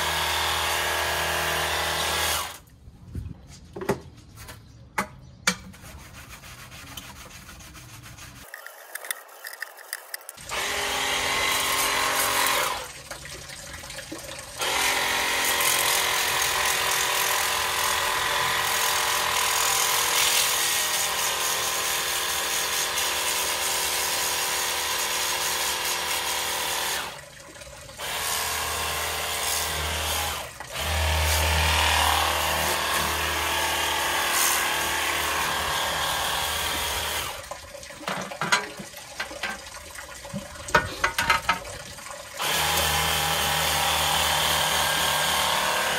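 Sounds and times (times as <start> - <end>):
pressure washer spraying metal: 20.1 - 27.0, 32.4 - 35.6.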